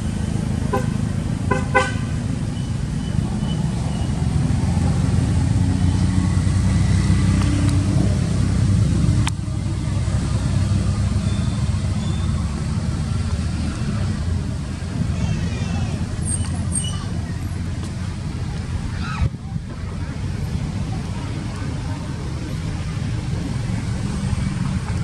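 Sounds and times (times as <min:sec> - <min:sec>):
vehicle engine rumbling: 0:00.0 - 0:25.0
short high squeaks: 0:16.2 - 0:17.1.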